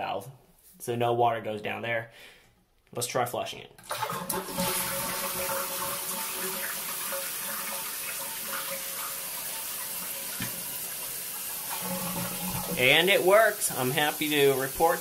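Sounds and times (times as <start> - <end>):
toilet cistern refilling: 3.8 - 15.0.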